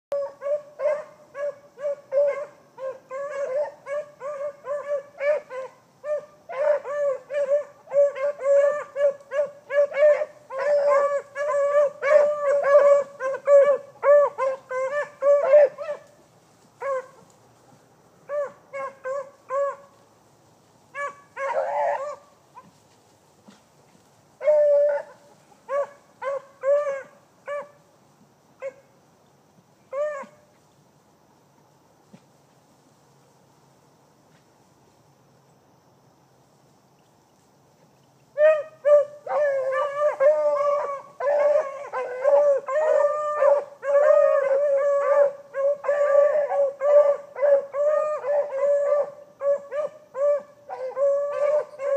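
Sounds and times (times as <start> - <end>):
dog baying: 38.4 - 51.9.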